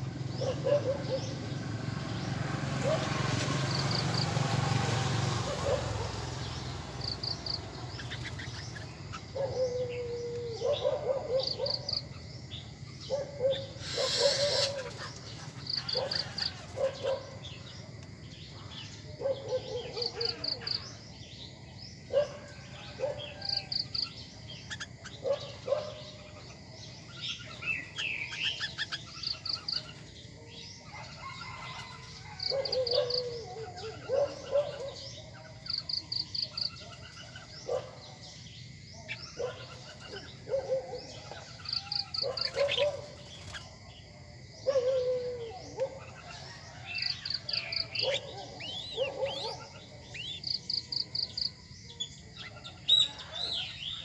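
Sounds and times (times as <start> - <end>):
birds calling: 0.0 - 54.0
high bird chirps: 13.1 - 17.7.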